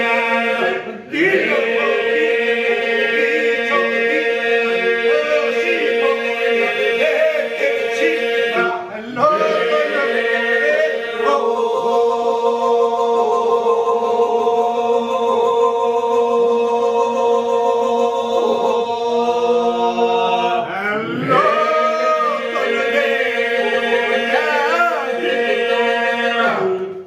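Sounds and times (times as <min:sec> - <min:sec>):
men singing a drone: 0:00.0 - 0:27.0
lead voice singing melody: 0:20.6 - 0:27.0.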